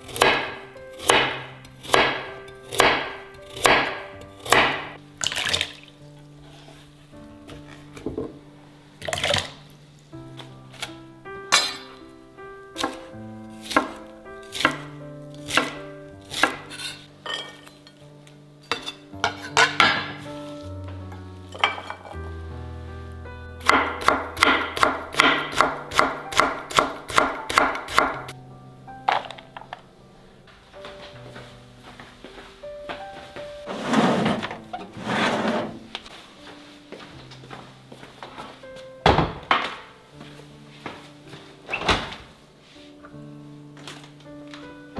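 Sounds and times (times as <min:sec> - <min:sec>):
soft background music: 0:00.0 - 0:44.9
knife chopping on wooden board: 0:00.1 - 0:04.9, 0:12.8 - 0:14.8, 0:15.5 - 0:16.9, 0:23.6 - 0:28.3
kitchenware knocks and clinks: 0:11.5 - 0:12.0, 0:16.7 - 0:18.0, 0:18.7 - 0:20.3, 0:21.6 - 0:22.2, 0:29.1 - 0:29.8.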